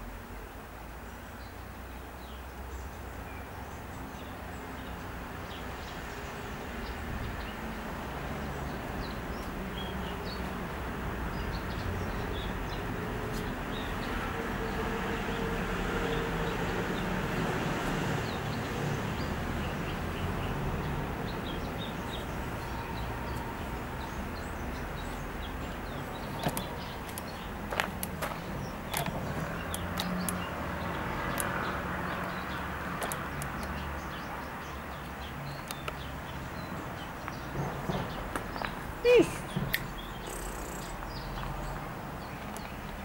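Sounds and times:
low hum of distant traffic: 0.0 - 43.0
small birds chirping: 1.0 - 17.4, 18.1 - 43.0
sharp clicks: 33.0 - 33.8.

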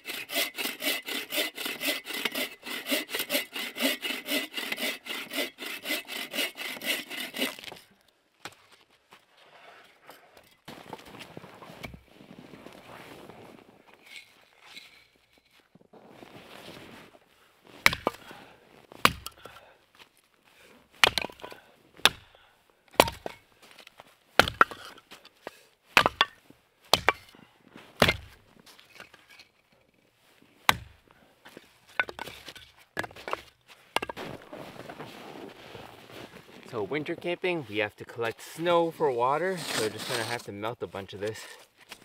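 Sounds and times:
firewood being chopped: 17.8 - 18.4, 19.0 - 19.6, 21.0 - 22.3, 22.9 - 23.4, 24.4 - 25.1, 26.0 - 27.4, 28.0 - 28.4, 30.7 - 31.0, 32.0 - 34.4.

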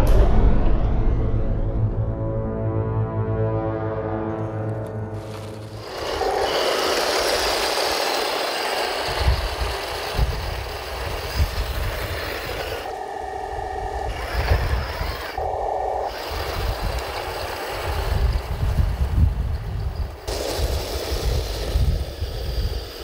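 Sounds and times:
model tank motors and tracks whirring: 4.6 - 23.0
steady pitched tone: 11.4 - 17.6.

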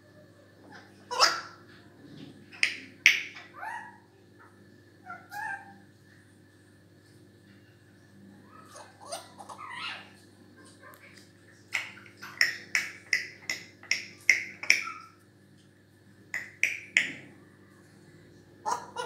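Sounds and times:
parrot calling: 0.6 - 1.7, 2.5 - 5.8, 8.4 - 15.2, 16.4 - 17.2, 18.6 - 19.0.

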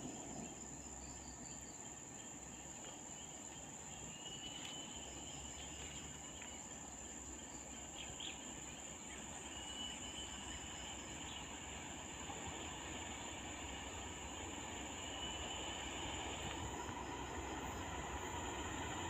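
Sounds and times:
faint short whistled calls: 9.4 - 11.0.

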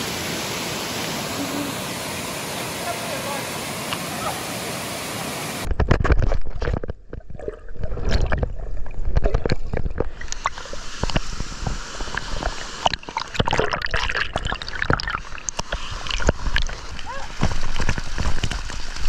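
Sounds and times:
waterfall hiss: 0.0 - 5.7, 10.2 - 13.4, 15.2 - 19.0
water splashing: 0.0 - 19.0
water sloshing and gurgling: 5.6 - 19.0.

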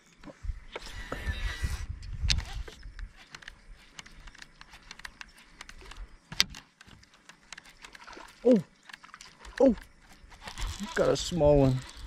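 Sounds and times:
fishing tackle clicks and taps: 2.2 - 8.1.

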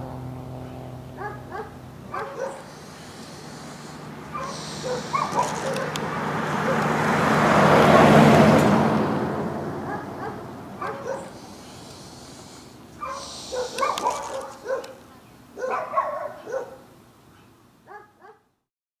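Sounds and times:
vehicle passing: 0.0 - 16.4
dog barking: 1.2 - 2.8, 4.3 - 7.0, 9.8 - 11.4, 13.0 - 15.0, 15.6 - 16.9, 17.8 - 18.5.

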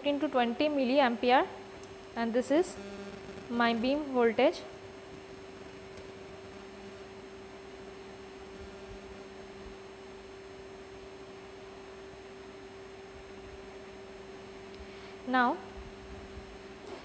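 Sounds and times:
electrical hum: 0.0 - 17.0.

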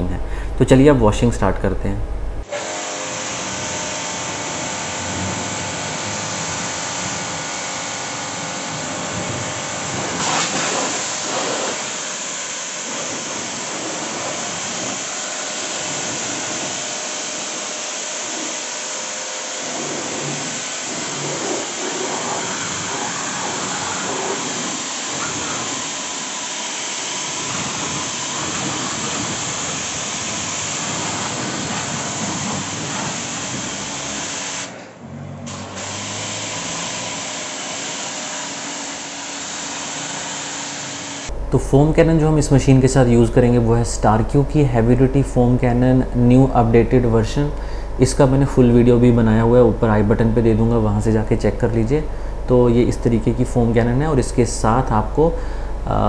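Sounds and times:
motor hum: 0.0 - 56.0
pressure washer spray hissing: 2.5 - 34.8, 35.5 - 41.3.

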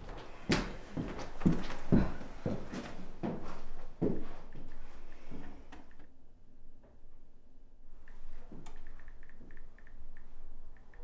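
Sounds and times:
soft irregular ticks: 8.0 - 11.0.

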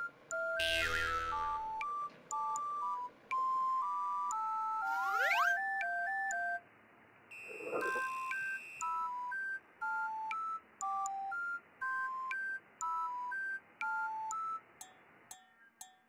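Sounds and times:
electronic beep melody: 0.0 - 6.6, 7.3 - 11.4.

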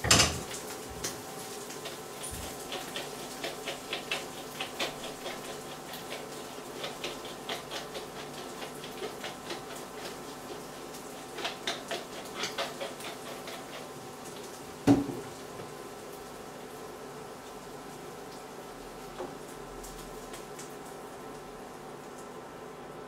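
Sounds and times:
food sizzling in a pan: 0.0 - 22.2
pepper mill grinding: 1.8 - 13.9.

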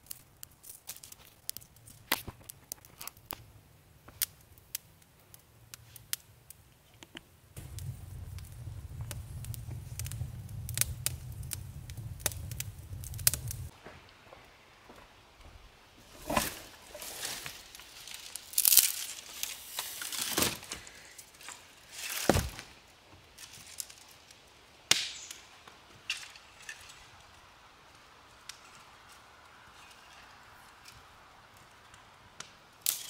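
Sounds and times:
twigs rustling: 0.0 - 3.4, 7.6 - 24.4
dry sticks snapping: 0.1 - 3.4, 17.4 - 19.6, 32.4 - 33.0.

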